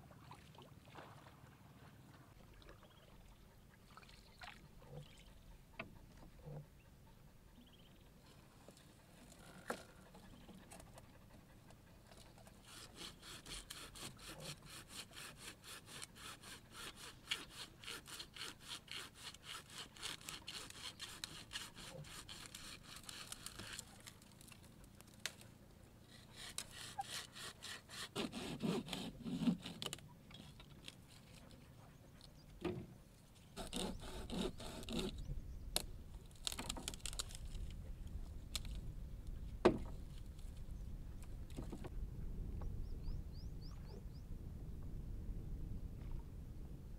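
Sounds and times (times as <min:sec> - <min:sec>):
saw cutting through branch: 0:12.4 - 0:24.5, 0:26.1 - 0:30.0, 0:33.6 - 0:35.3, 0:36.3 - 0:37.6
wood knocks: 0:39.6 - 0:39.9.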